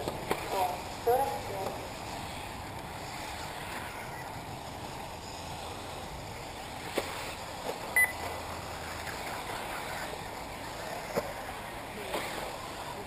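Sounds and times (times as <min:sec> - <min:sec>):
rc car motors and tyres whirring: 0:00.0 - 0:13.0
short high electronic beep: 0:08.0 - 0:08.2.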